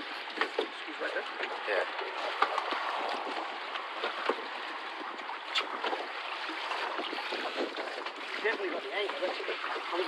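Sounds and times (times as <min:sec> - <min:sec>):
water washing around boat: 0:00.0 - 0:10.0.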